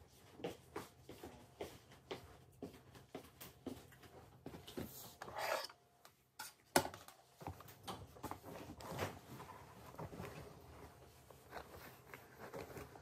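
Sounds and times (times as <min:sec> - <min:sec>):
fabric rustling: 0:08.4 - 0:13.0.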